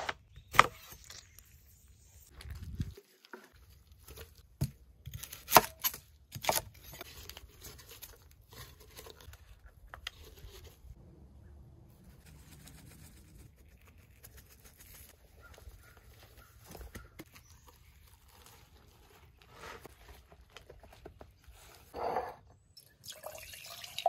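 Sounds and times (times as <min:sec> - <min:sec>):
rustling of raw chicken handling: 0:12.0 - 0:21.9.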